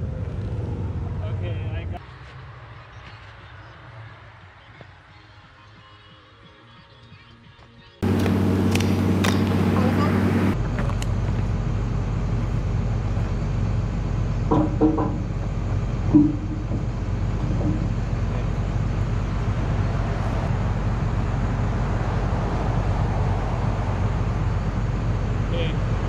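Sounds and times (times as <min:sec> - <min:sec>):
excavator diesel engine idling: 0:08.0 - 0:26.0
short knock: 0:16.1 - 0:16.9.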